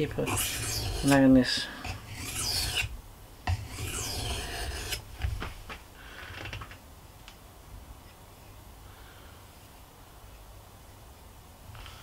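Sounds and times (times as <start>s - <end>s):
knife scraping on whetstone: 0.0s - 2.9s, 3.5s - 5.0s.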